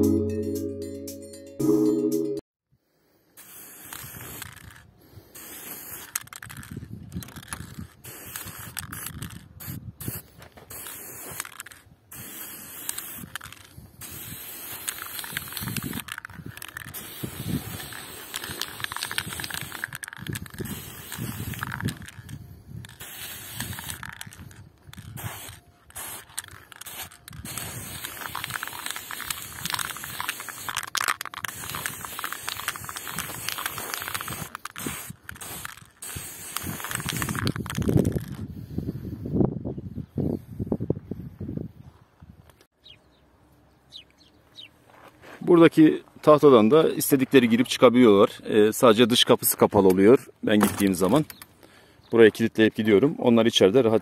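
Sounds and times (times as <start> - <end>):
spray paint can hissing: 3.4 - 38.8.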